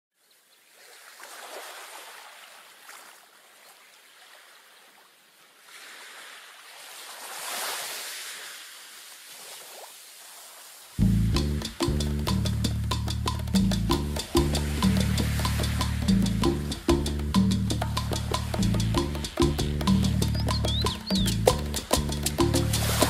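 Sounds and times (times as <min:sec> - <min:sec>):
ocean waves washing in: 0:05.6 - 0:11.0, 0:14.1 - 0:20.2, 0:21.0 - 0:23.0.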